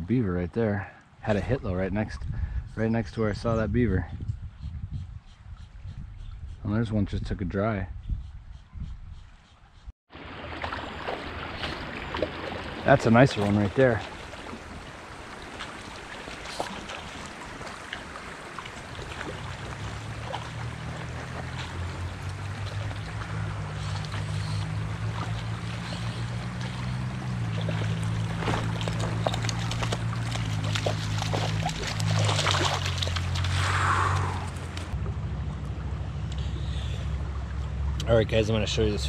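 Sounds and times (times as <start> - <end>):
river water running: 10.1 - 39.0
fish thrashing splashes: 10.2 - 35.0.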